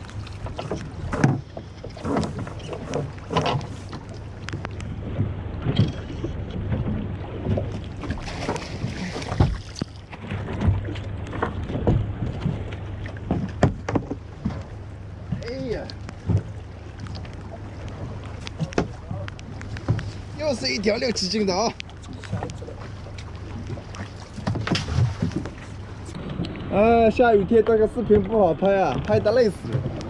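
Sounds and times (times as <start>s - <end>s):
fish thrashing in water: 0.0s - 26.6s
knocks and clatter on boat: 0.0s - 30.0s
water splashing against boat: 0.0s - 30.0s.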